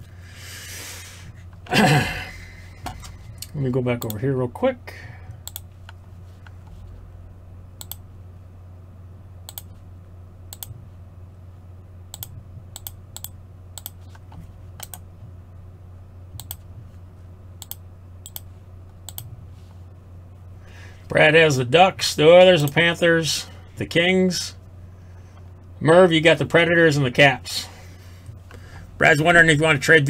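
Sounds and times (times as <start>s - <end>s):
steady low hum: 0.0s - 30.0s
computer mouse clicks: 5.4s - 6.6s, 7.8s - 8.0s, 9.5s - 9.8s, 10.5s - 10.8s, 12.1s - 15.0s, 16.4s - 16.6s, 17.6s - 18.5s, 19.1s - 19.3s.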